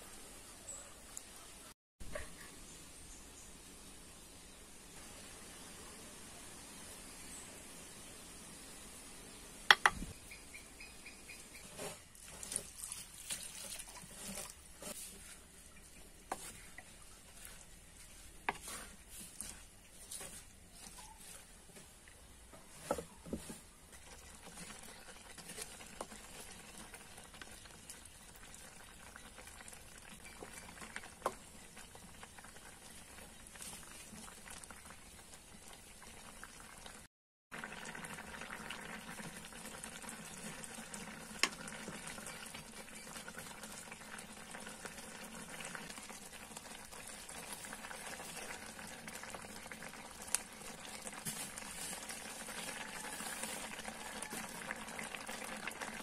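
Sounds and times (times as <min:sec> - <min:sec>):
curry bubbling in a pot: 0:11.3 - 0:56.0
wooden spoon stirring: 0:11.5 - 0:34.9, 0:39.0 - 0:56.0.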